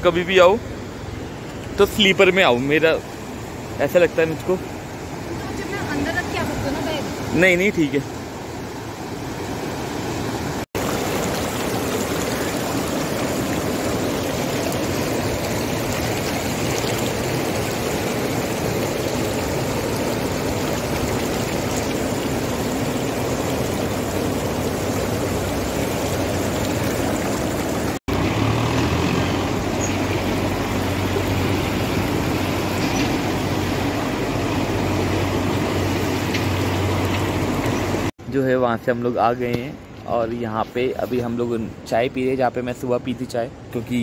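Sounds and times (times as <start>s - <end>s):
river rushing over boulders: 0.1s - 38.1s
low engine hum: 23.2s - 38.1s.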